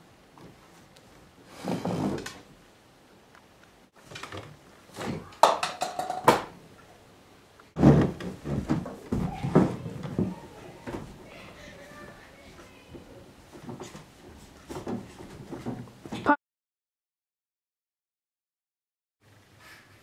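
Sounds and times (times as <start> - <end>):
chair scraping across floor: 1.5 - 2.5, 7.8 - 10.4.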